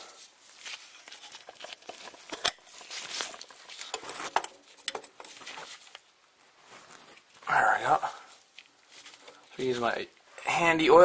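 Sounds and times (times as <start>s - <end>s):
hands working at oil filter: 1.0s - 6.0s.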